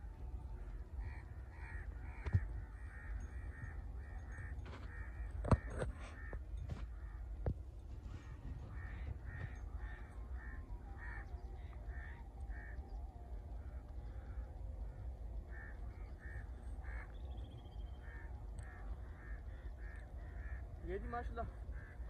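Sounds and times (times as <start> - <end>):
steady low rumble: 0.0 - 5.4, 6.1 - 20.8
bird calling: 8.1 - 22.0.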